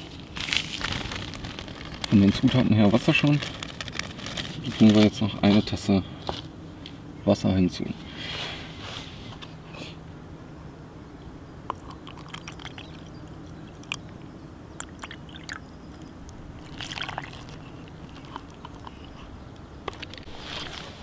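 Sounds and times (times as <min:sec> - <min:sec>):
water pouring into cup: 0:11.7 - 0:14.1, 0:14.8 - 0:18.9.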